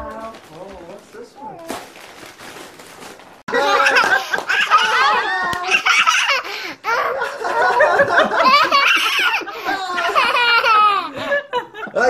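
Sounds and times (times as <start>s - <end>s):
people talking: 0.0s - 1.8s
group of people laughing: 3.5s - 12.0s.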